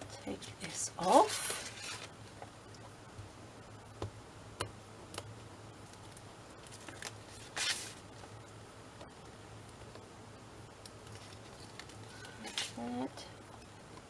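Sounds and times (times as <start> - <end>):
paper rustle: 6.7 - 8.0.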